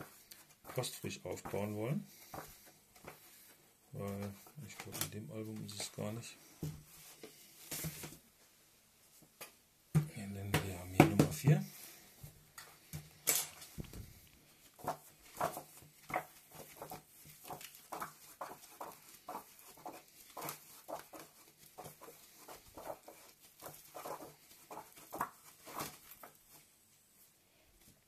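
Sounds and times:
album pages turning: 0:00.0 - 0:06.3, 0:12.6 - 0:26.7.

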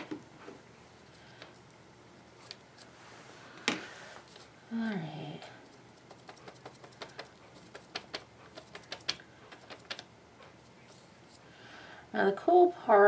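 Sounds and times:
paintbrush dabbing on paper: 0:05.6 - 0:09.9.

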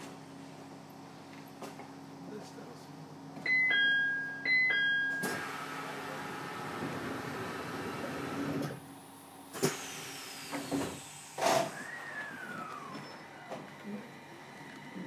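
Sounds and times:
two-tone door chime: 0:03.5 - 0:05.8.

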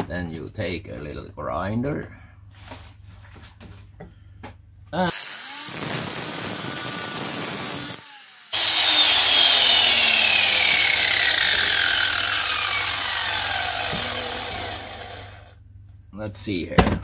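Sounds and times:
angle grinder grinding steel: 0:05.1 - 0:15.5.

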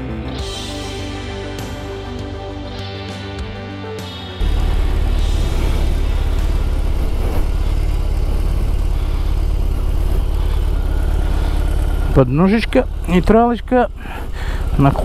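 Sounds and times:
motorcycle engine idling: 0:04.4 - 0:15.0.

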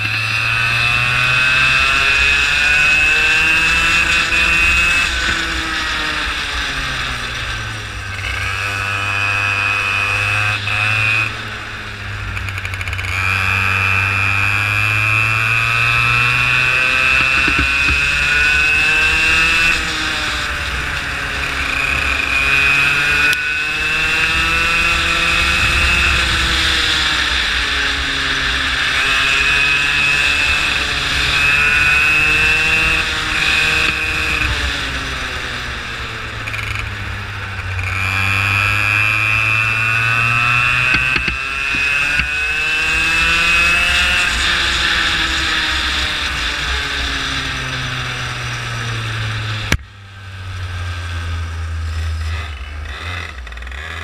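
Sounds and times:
go-kart engine accelerating: 0:00.0 - 0:54.0
steady high whine: 0:13.8 - 0:53.6.

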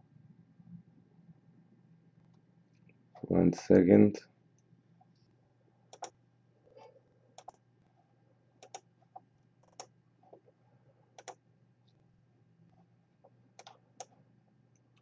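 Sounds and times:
faint steady hum: 0:00.0 - 0:15.0
computer mouse clicking: 0:05.9 - 0:06.2, 0:07.4 - 0:07.6, 0:08.6 - 0:08.9, 0:09.6 - 0:10.4, 0:11.2 - 0:11.4, 0:13.6 - 0:14.2.

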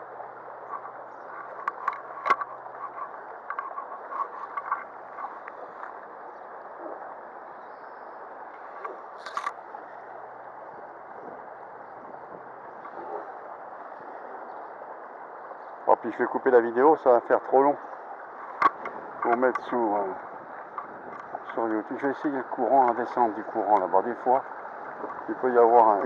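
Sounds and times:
small clicks and knocks: 0:00.7 - 0:06.1, 0:08.6 - 0:09.6, 0:18.6 - 0:19.7, 0:20.7 - 0:21.8.

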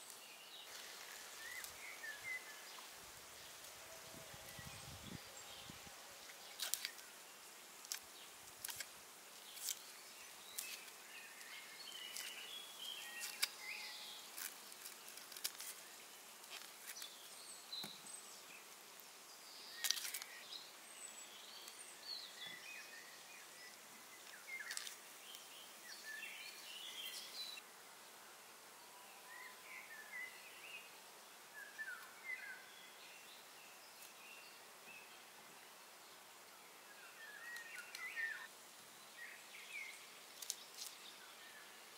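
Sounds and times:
birds chirping: 0:19.3 - 0:27.6, 0:36.6 - 0:41.8.

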